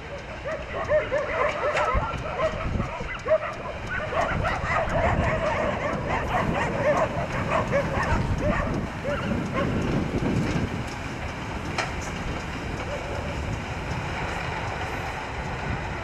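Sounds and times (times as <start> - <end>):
dog barking and yipping: 0.0 - 9.8
steam locomotive rumble: 0.0 - 16.0.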